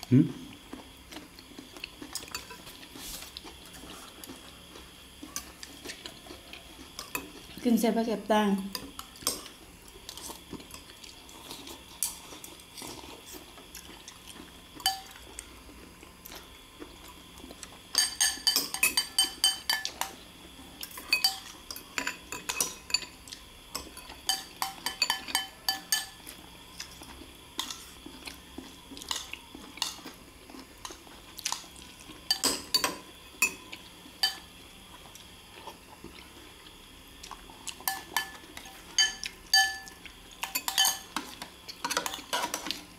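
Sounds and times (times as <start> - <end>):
cutlery clinking on ceramic bowls: 2.1 - 2.7, 14.8 - 15.2, 17.9 - 20.2, 20.8 - 26.2, 32.3 - 33.6, 34.2 - 34.5, 37.8 - 42.8.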